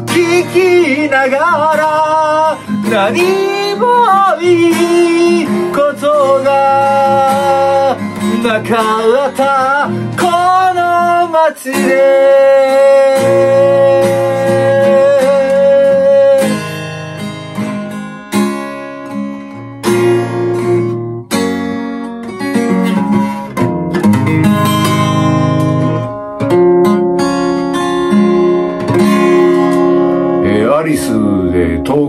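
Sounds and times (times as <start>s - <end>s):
acoustic guitar strummed: 0.0s - 32.0s.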